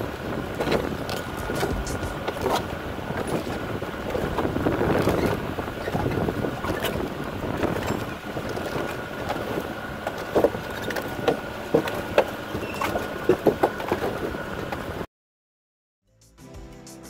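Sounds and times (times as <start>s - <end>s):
vehicle engine and road noise: 0.0s - 15.1s
sharp knocks and rattles: 0.6s - 3.6s.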